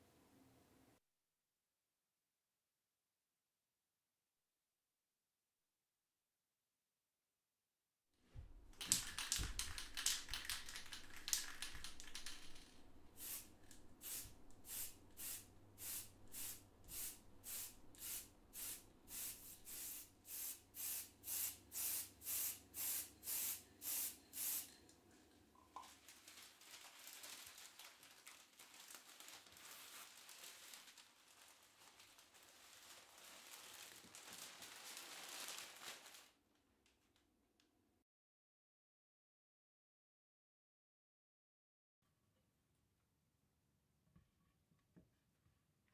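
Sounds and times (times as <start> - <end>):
spray paint can bursts: 8.8 - 24.8
newspaper crinkling: 25.8 - 36.4.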